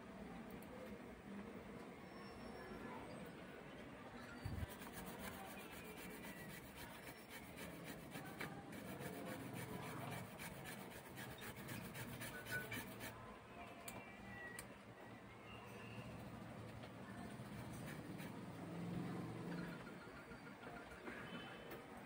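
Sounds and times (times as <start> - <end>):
toothbrush scrubbing circuit board: 4.5 - 13.1, 17.5 - 18.4.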